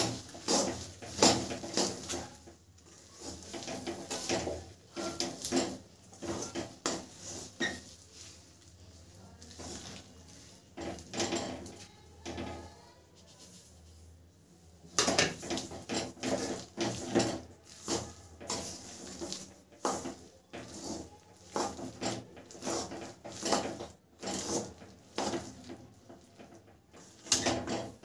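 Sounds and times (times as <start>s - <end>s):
metal spatula scraping a pan: 0.0s - 28.0s.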